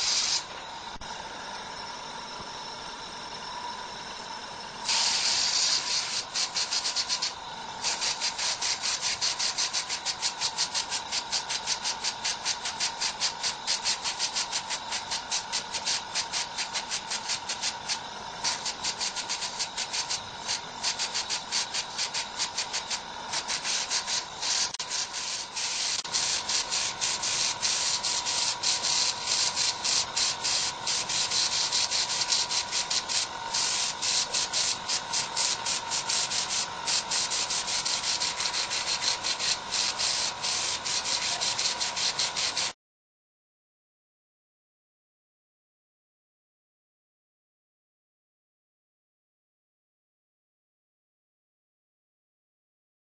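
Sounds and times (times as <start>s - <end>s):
airbrush hissing bursts: 0.0s - 1.1s, 4.8s - 42.8s.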